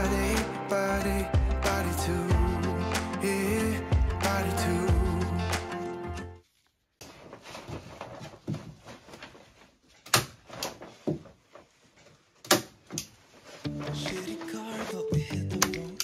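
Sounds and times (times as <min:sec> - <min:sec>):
bubble wrap crinkling: 0:06.4 - 0:10.0.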